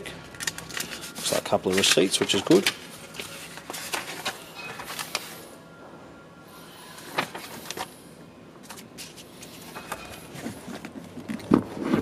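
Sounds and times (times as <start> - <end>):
paper rustling: 0.4 - 5.4.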